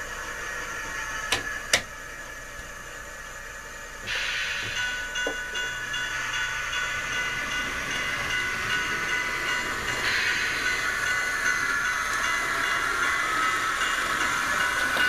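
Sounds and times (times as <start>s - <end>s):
model locomotive engine drone: 0.0s - 15.0s
hissing rush: 4.1s - 15.0s.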